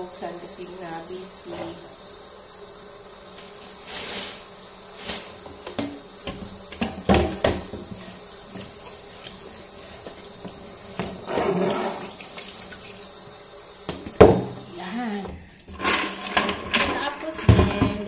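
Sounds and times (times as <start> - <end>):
faint high hiss: 0.0 - 17.8
tap water running into sink: 5.4 - 18.0
scrape at steel sink: 11.2 - 12.2, 15.8 - 17.5
cutting board knocking on sink: 13.9 - 14.6.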